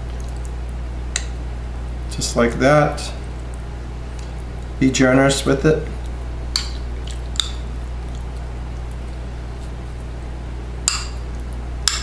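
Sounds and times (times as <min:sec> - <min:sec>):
wet squelches of sauce: 0:00.0 - 0:02.1, 0:03.1 - 0:04.8, 0:05.8 - 0:10.2
low electrical hum: 0:00.0 - 0:12.0.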